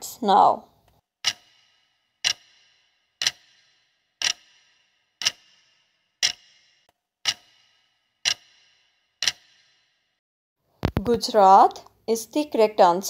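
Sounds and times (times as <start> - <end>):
clock ticking with short ring: 1.2 - 9.9.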